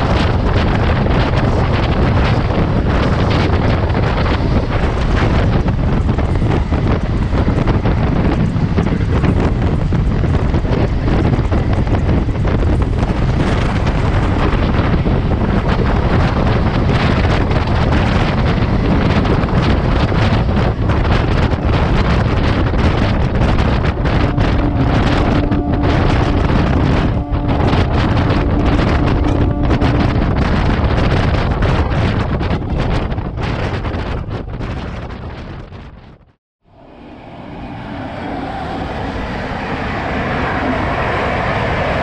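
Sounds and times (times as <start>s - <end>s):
train overtaking: 0.0s - 32.8s, 36.7s - 42.0s
train rumbling: 0.0s - 42.0s
wind buffeting microphone: 0.0s - 42.0s
steady tone: 24.2s - 31.0s, 36.6s - 42.0s.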